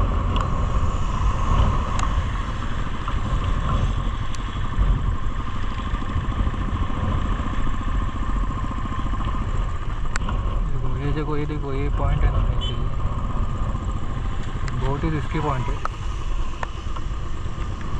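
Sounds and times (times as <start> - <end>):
wind noise on microphone: 0.0 - 11.0
motorcycle engine idling: 0.0 - 17.9.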